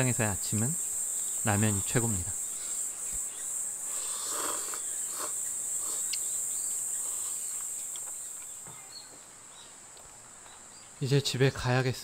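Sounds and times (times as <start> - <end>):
insects chirring: 0.0 - 12.0
man slurping noodles: 3.9 - 6.2.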